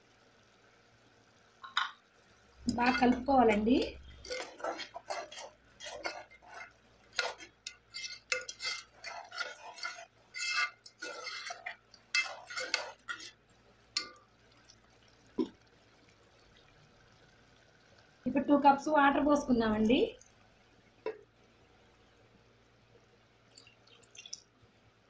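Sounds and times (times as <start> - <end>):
ladle scraping metal pot: 2.6 - 14.1.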